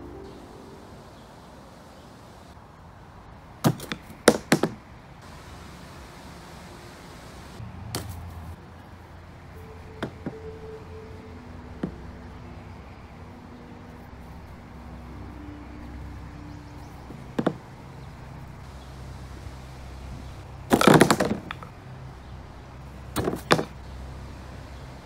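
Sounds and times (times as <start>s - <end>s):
plastic pins clattering: 20.7s - 21.7s.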